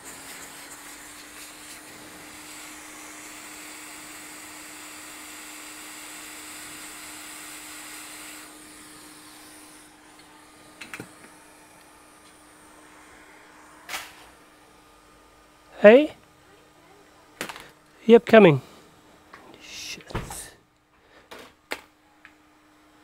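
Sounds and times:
hot air gun hissing: 0.0 - 14.5
steady fan hum: 0.0 - 23.0.

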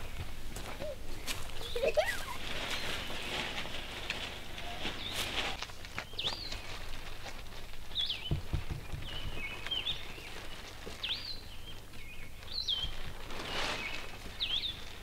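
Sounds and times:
songbird calling: 4.6 - 6.7, 8.0 - 14.9
soft low thumps: 8.2 - 10.0.

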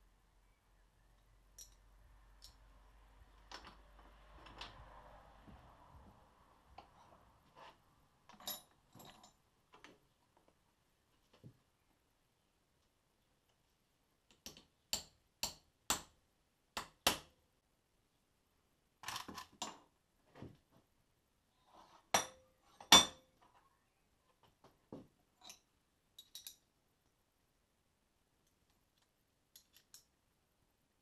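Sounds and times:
metal clinks and clanks: 8.3 - 9.4
hammer tapping metal: 14.4 - 16.1.

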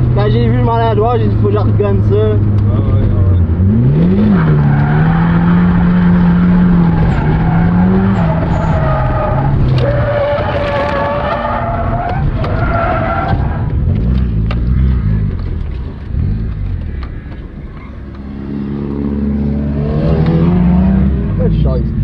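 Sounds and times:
car tyres squealing: 3.2 - 14.1.

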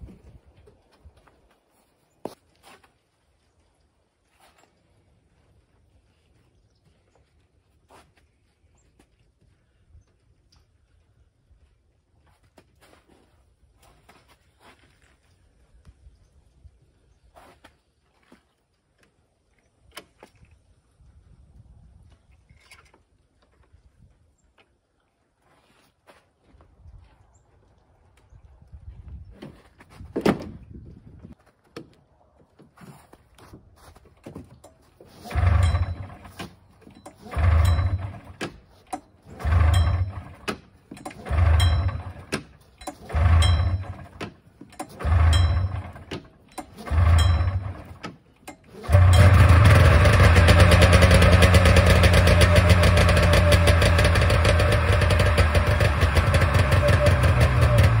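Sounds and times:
engine pull-start cranking: 34.6 - 58.0
two-stroke engine running: 35.2 - 44.2, 44.8 - 48.0, 48.6 - 58.0.

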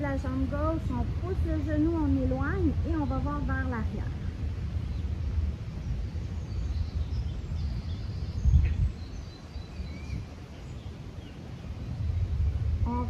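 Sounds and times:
steady low rumble: 0.0 - 13.0
faint bird chirps: 5.8 - 13.0.

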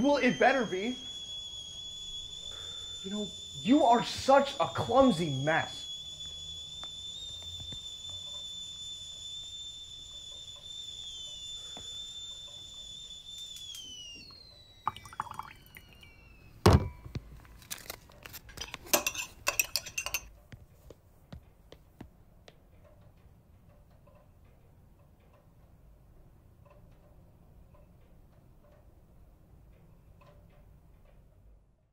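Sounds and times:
kettle whistling: 0.0 - 20.3
dishes clinking: 18.6 - 20.3.

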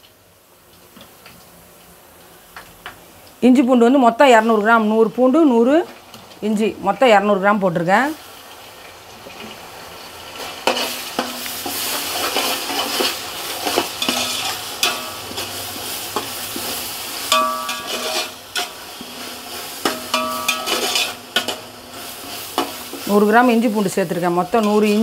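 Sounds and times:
onions sizzling in hot oil: 0.0 - 25.0
spoon scraping and knocking pot: 10.6 - 15.5, 17.3 - 21.6.

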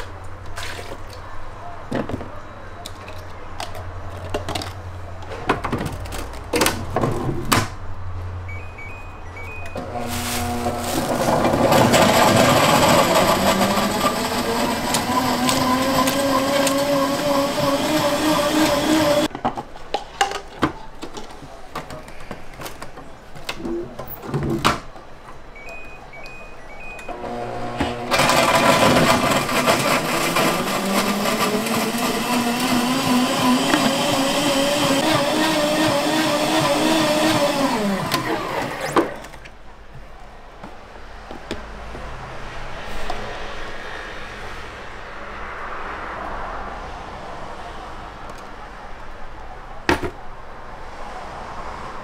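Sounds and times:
blender motor running: 9.8 - 19.3, 27.1 - 39.2.

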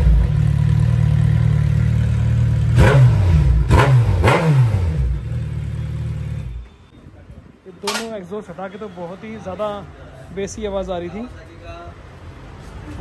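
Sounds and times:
motorcycle engine idling: 0.0 - 3.7, 4.9 - 6.8
motorcycle engine revving: 0.0 - 6.6.

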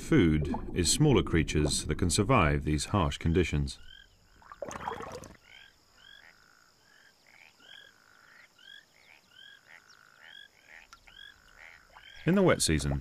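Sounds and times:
frogs chirping: 3.3 - 13.0.

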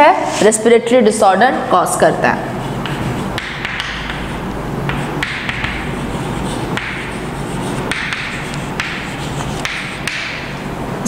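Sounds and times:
chalk writing on blackboard: 2.6 - 10.6.

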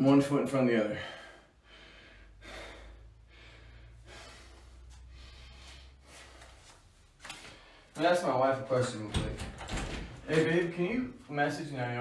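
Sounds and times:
man breathing hard: 0.9 - 8.0.

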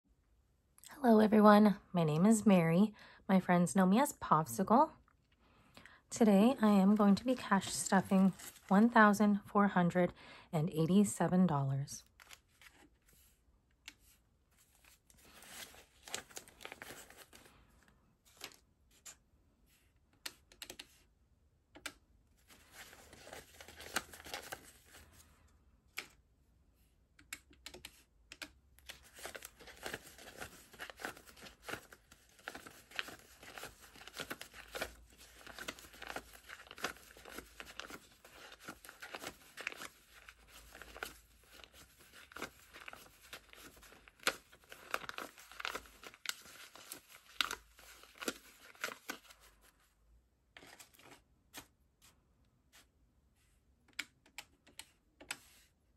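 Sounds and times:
banknotes rustling and flicking: 6.6 - 9.2, 12.0 - 19.2, 22.4 - 26.2, 27.6 - 49.9.

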